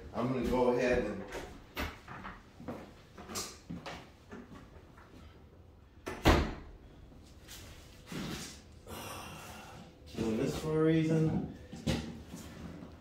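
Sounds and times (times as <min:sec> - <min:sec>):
loud door thump: 0:06.1 - 0:06.7.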